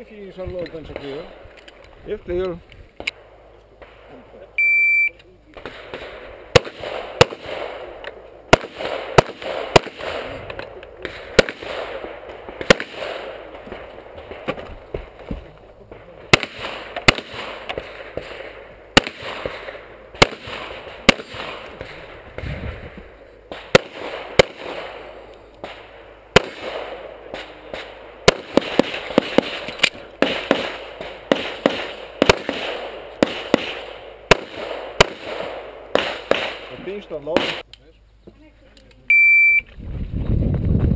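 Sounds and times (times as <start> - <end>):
pistol shots in quick pairs: 5.6 - 14.6, 16.3 - 22.5, 23.5 - 37.6.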